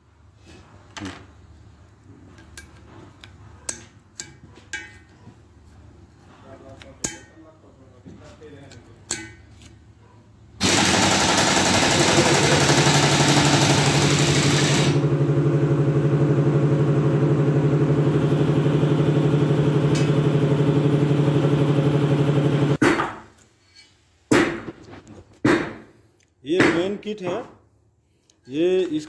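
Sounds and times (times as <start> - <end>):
loud motor running: 10.6 - 22.8.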